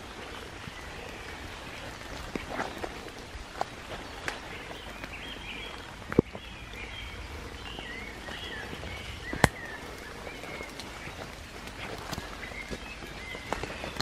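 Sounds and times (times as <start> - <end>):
songbird whistling and chirping: 4.6 - 14.0.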